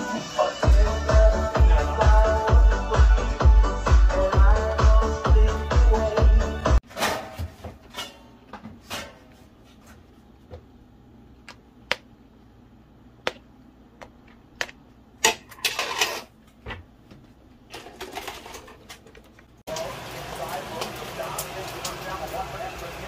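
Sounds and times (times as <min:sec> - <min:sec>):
metal spoon scraping a wok: 0:15.6 - 0:16.3.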